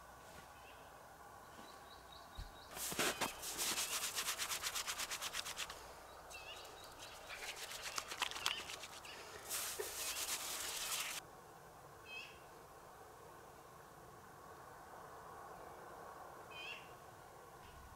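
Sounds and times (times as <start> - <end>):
rasping scrapes: 2.8 - 5.8, 6.8 - 11.2.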